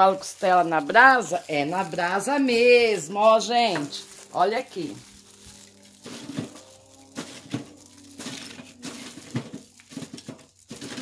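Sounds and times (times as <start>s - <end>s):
aluminium foil crinkling: 0.0s - 11.0s
coals crunching and cracking: 0.0s - 11.0s.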